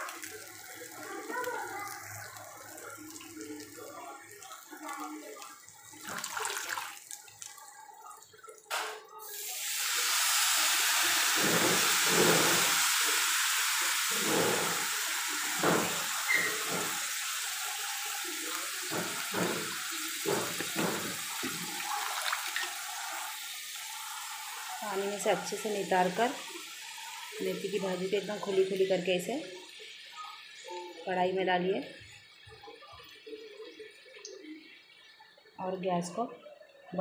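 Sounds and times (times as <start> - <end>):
leaves sizzling in hot pan: 0.0 - 6.0, 9.2 - 32.5.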